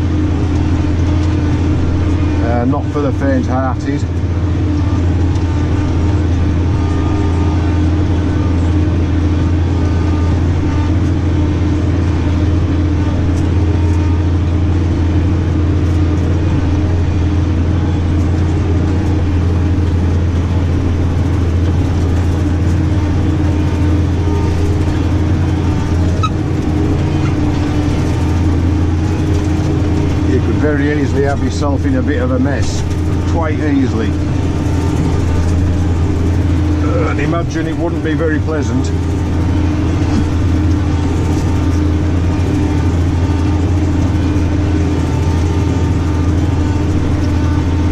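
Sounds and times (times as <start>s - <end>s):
tractor engine droning: 0.0s - 47.9s.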